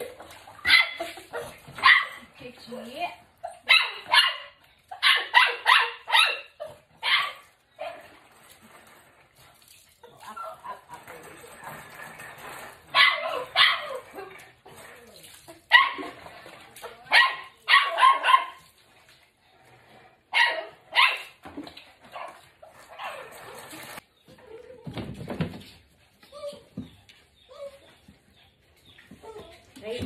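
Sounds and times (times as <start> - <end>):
dog barking and yelping: 0.6 - 2.2, 3.4 - 8.1, 12.9 - 14.4, 15.7 - 16.2, 17.1 - 18.7, 20.3 - 21.4, 22.1 - 23.5.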